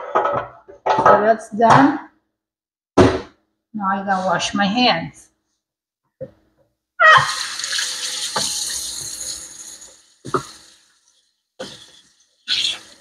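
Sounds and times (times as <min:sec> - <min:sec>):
water running into sink: 0:07.0 - 0:13.0.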